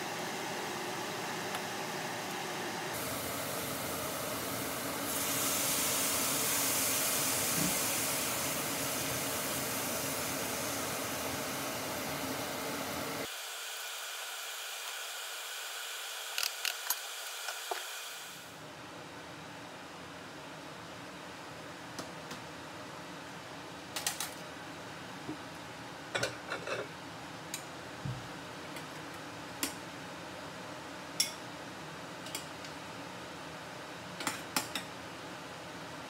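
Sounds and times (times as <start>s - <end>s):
food sizzling in a pan: 0.0s - 18.5s.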